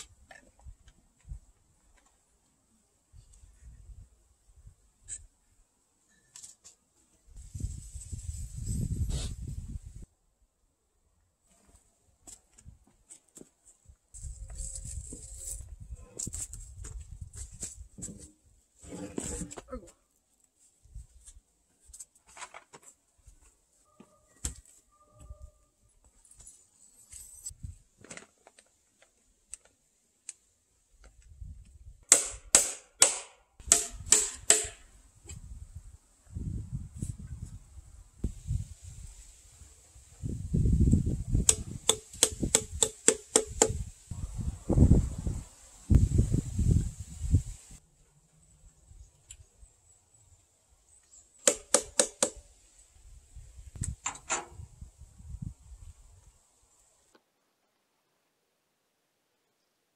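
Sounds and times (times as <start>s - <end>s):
hammer nailing wood: 32.1s - 34.8s, 41.5s - 43.8s, 51.4s - 52.4s.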